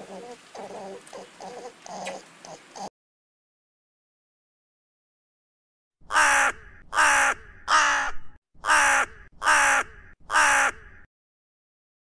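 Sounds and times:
rook cawing: 0:06.0 - 0:11.1.

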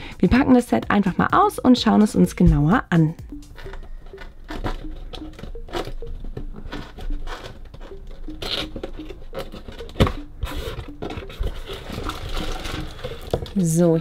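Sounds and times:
cardboard scraping and rustling: 0:03.7 - 0:14.0.

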